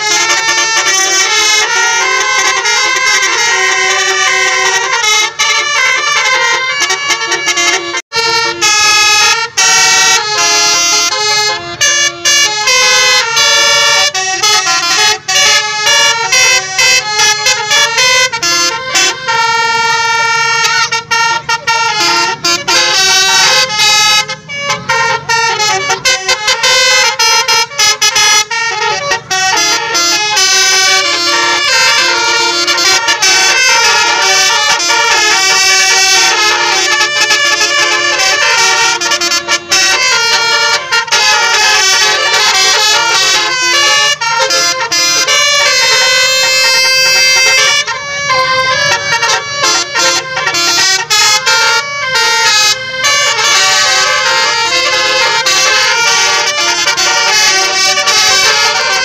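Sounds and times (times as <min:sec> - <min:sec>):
musical air horns playing melody: 0:00.0 - 0:59.0.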